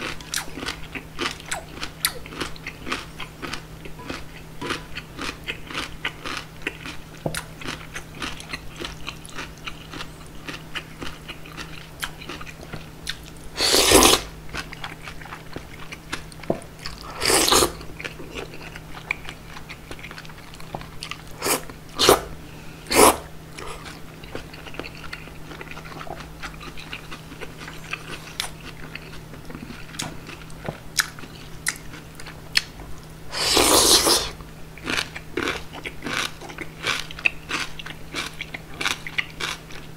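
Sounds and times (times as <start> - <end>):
chewing with mouth clicks: 0.0 - 22.3, 22.9 - 32.8, 33.4 - 39.9
slurping noodles: 13.6 - 14.3, 17.0 - 17.8, 21.4 - 22.3, 22.9 - 23.9, 33.3 - 34.4.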